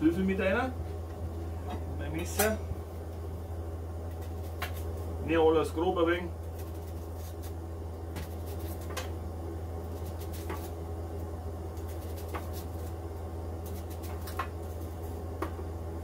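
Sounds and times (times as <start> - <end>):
steady low hum: 0.0 - 16.0
knife slicing onion: 4.1 - 5.1, 6.4 - 9.2, 9.8 - 10.8, 11.7 - 15.6.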